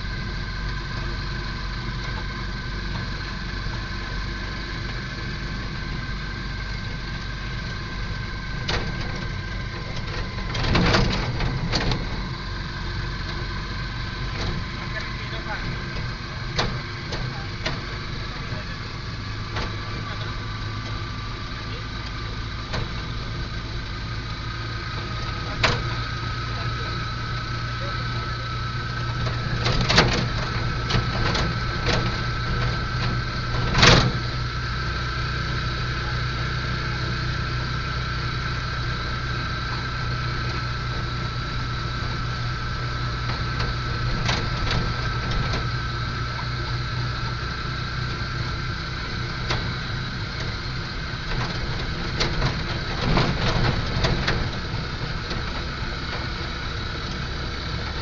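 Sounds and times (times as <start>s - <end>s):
engine and road drone: 0.0s - 58.0s
thin whine: 0.0s - 58.0s.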